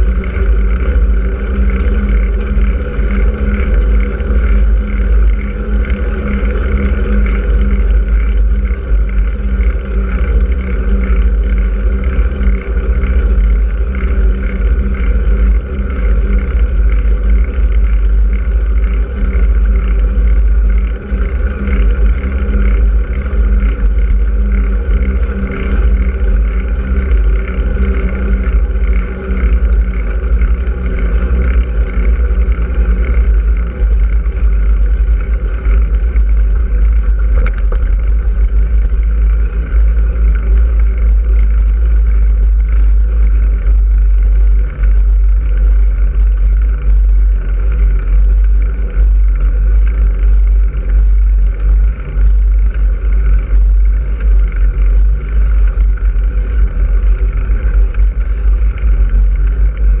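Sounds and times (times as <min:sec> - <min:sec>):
road noise: 0:00.0 - 1:00.0
small rattles: 0:00.0 - 1:00.0
wind rumble: 0:00.0 - 1:00.0.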